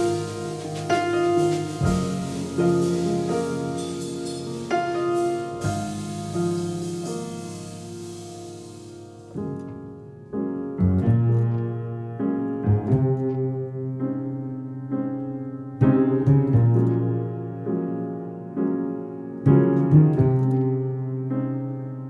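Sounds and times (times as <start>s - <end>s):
plucked double bass: 0.0s - 7.8s, 12.7s - 13.9s, 15.8s - 17.2s
piano chords: 0.0s - 22.0s.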